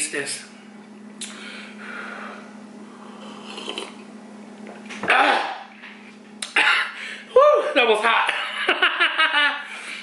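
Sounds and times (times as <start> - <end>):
sipping hot drink: 3.0 - 4.1.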